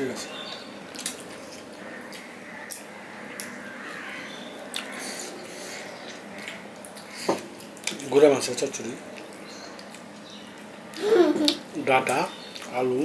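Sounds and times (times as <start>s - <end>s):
chewing: 4.7s - 8.0s, 9.1s - 10.8s.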